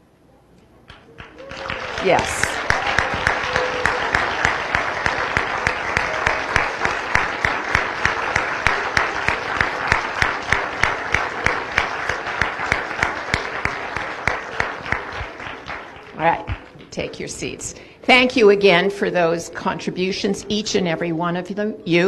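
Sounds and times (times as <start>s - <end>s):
audience applauding: 0.9s - 16.8s.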